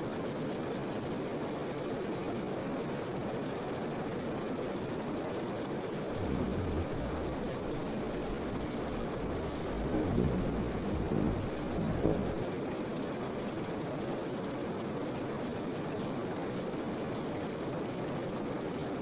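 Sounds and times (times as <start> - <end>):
low rumble: 6.1 - 12.7
rushing water: 6.1 - 12.8.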